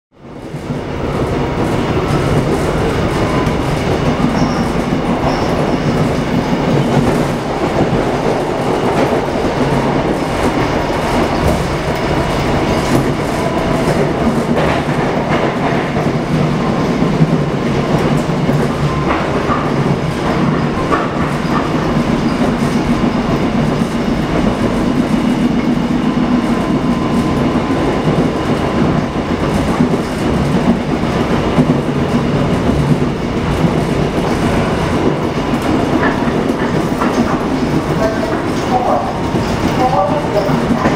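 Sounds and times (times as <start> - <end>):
train rumbling on track: 0.1 - 40.9.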